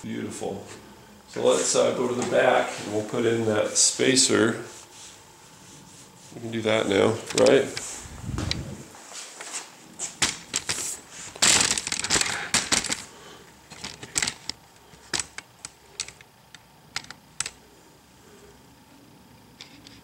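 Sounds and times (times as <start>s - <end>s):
tools and parts clicking: 11.4s - 13.1s, 13.7s - 17.6s.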